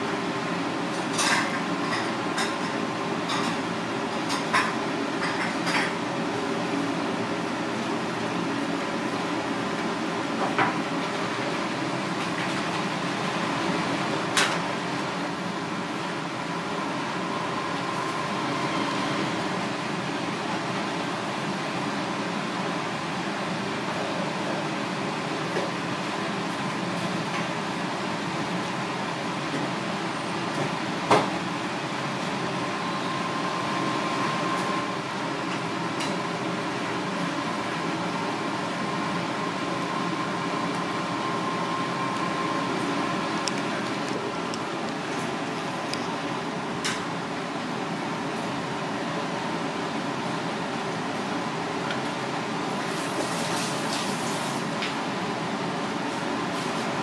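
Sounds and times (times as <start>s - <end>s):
mechanical hum: 0.0s - 57.0s.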